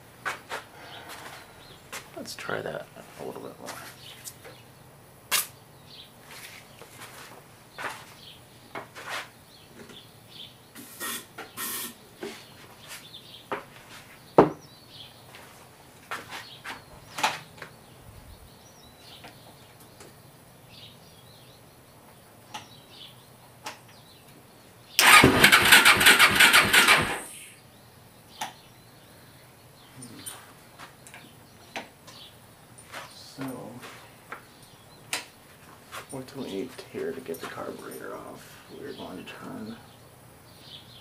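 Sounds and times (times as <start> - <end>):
electric starter cranking engine: 25.0 - 27.5.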